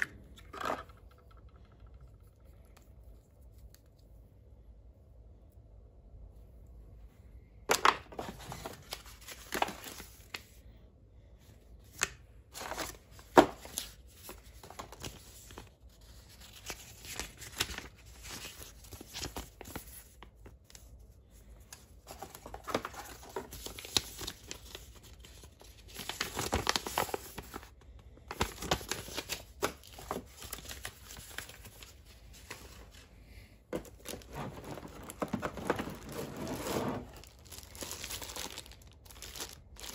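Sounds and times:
packaging rustling and crinkling: 7.7s - 10.5s, 12.5s - 20.3s, 22.0s - 39.9s.

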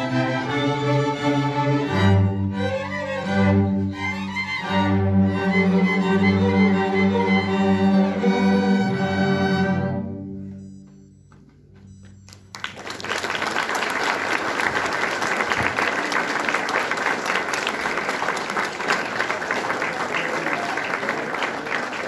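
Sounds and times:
string orchestra chord: 0.0s - 10.4s
audience applause: 12.5s - 22.0s.

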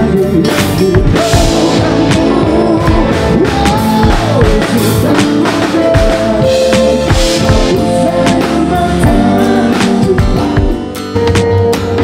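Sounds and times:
man singing into microphone: 0.0s - 11.0s
drum kit kick and snare: 0.0s - 12.0s
electric bass: 0.0s - 12.0s
electric guitar: 0.0s - 12.0s.

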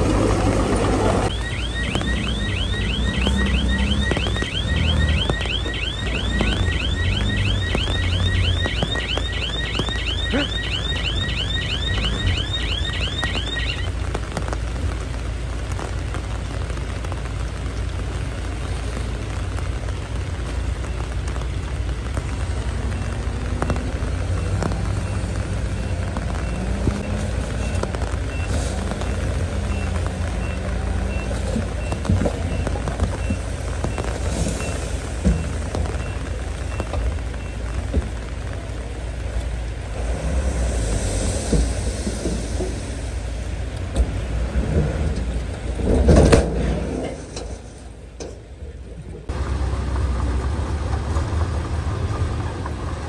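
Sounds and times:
warbling reversing alarm: 1.2s - 13.9s.

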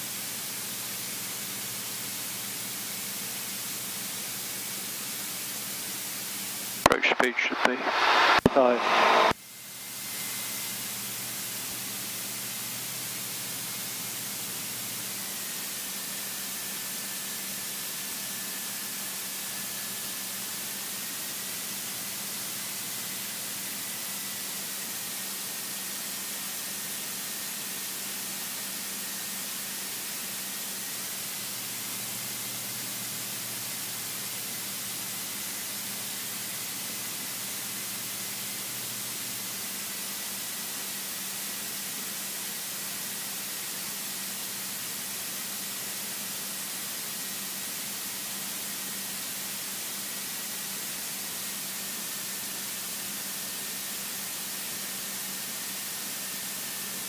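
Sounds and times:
aircraft cabin engine noise: 6.8s - 9.4s.

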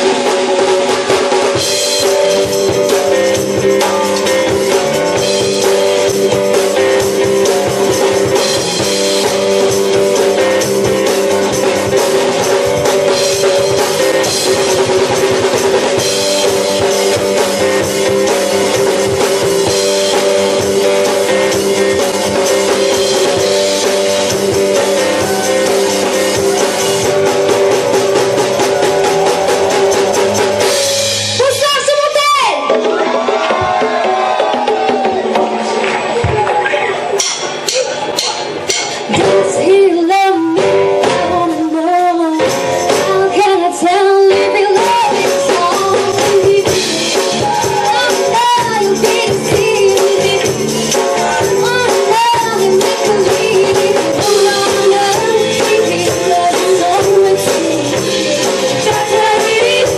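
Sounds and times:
bass guitar: 0.0s - 59.9s
drum kit steady beat: 0.0s - 59.9s
electric guitar: 0.0s - 59.9s.

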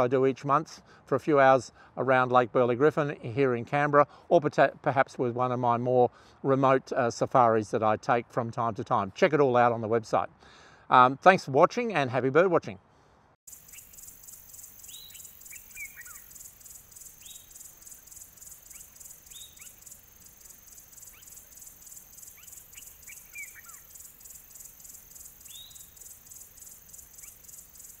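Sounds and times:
bird chirps and calls: 13.5s - 28.0s
pulsing insect trill: 13.5s - 28.0s.

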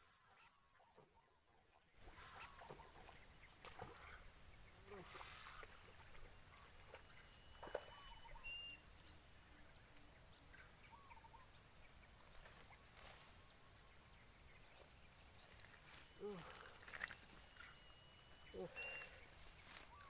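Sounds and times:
short bird chirps: 16.1s - 20.0s.

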